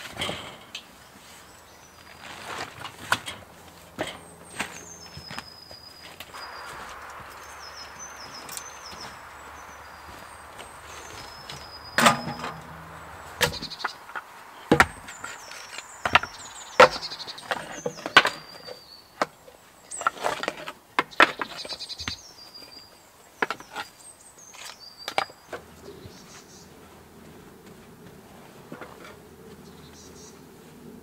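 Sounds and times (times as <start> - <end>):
firewood being chopped: 2.5 - 18.6.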